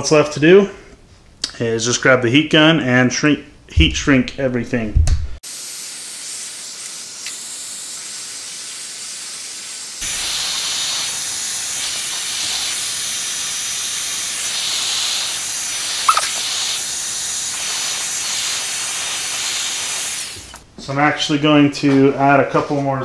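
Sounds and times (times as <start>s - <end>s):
heat gun blowing hiss: 5.4s - 20.6s
sharp click: 16.1s - 16.4s.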